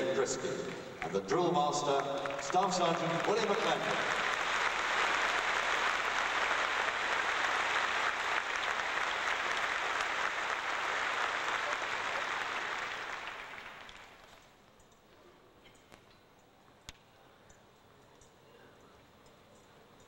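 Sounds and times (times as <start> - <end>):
audience applauding: 0.6 - 14.4.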